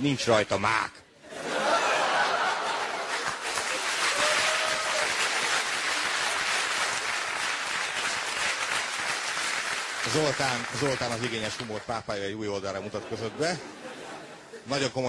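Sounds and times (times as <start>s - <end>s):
audience applauding: 2.0s - 12.1s.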